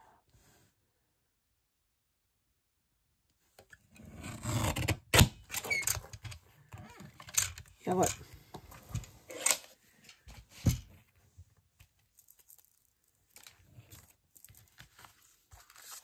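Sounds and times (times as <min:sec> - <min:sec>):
faint paper handling sounds: 0:07.8 - 0:16.0
paper rustling: 0:11.8 - 0:16.0.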